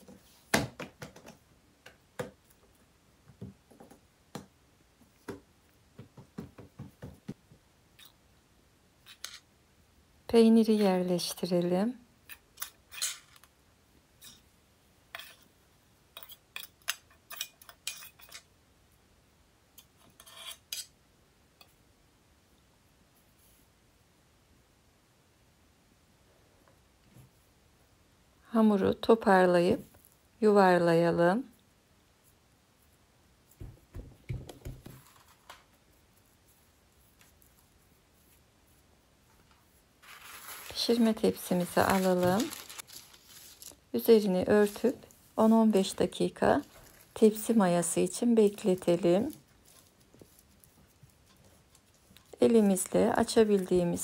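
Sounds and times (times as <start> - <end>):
hands patting dough: 3.3 - 7.7, 33.5 - 35.3
metal utensil scraping plate: 19.8 - 20.9.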